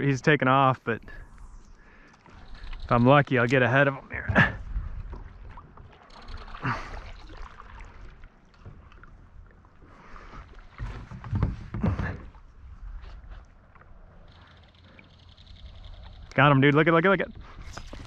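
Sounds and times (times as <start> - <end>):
paddle strokes in water: 4.6 - 14.0.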